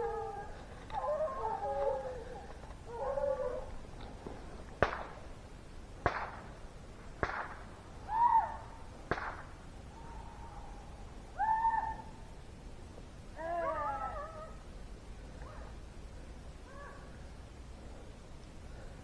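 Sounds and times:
hunting dogs baying and howling: 0.0s - 4.3s, 13.3s - 14.7s
distant gunshots: 4.8s - 5.2s, 6.0s - 6.4s.

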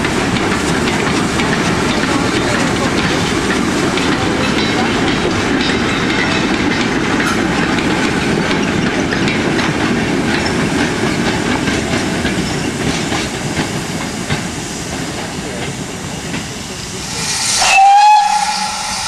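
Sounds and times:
wheels clattering over rail joints: 0.0s - 16.6s
freight train rumbling past: 0.0s - 19.0s.

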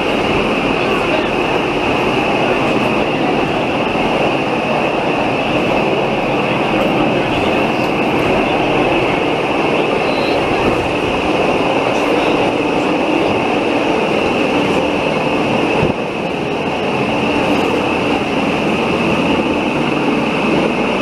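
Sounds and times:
rack railcar running noise: 0.0s - 21.0s.

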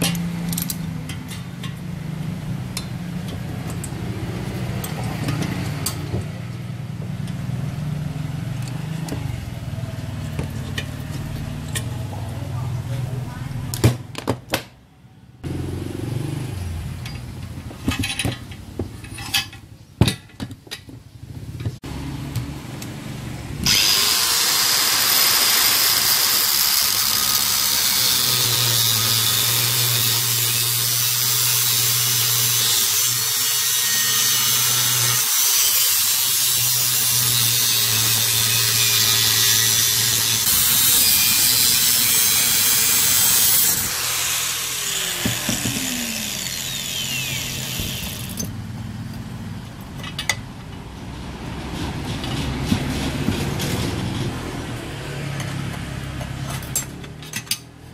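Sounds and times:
grinder disc winding down: 23.6s - 32.6s, 37.9s - 48.5s
angle grinder cutting metal: 23.6s - 48.5s.

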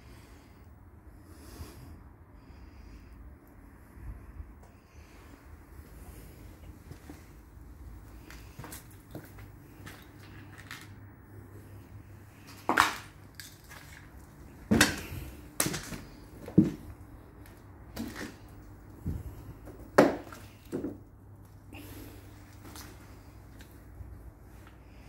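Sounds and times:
footsteps crunching on rubble: 8.2s - 11.0s, 12.4s - 21.0s.

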